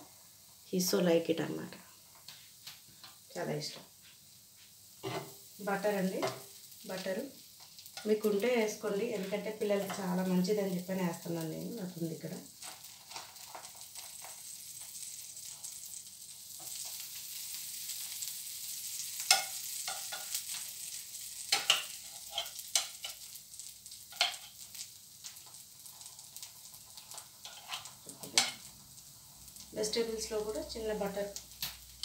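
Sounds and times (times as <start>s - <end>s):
dosa sizzling on pan: 0.0s - 32.0s
utensil clicking against pan: 19.3s - 20.3s, 21.5s - 23.2s, 24.1s - 24.6s.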